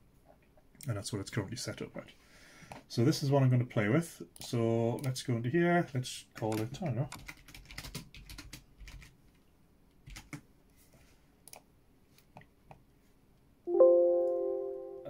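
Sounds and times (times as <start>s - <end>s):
keyboard typing: 6.4s - 9.2s, 10.0s - 10.4s.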